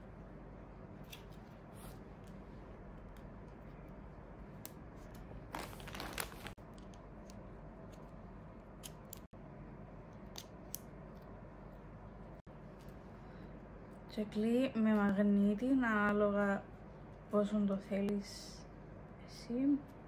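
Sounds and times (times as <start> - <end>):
rustling: 5.5 - 6.6.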